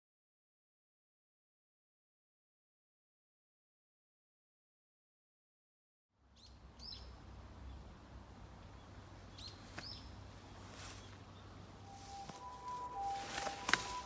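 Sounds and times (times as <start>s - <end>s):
birds chirping: 6.3s - 14.0s
steady tones: 11.6s - 14.0s.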